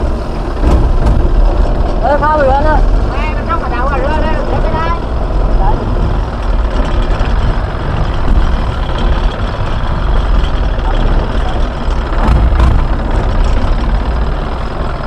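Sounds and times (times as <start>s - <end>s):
boat engine rumbling: 0.0s - 15.0s.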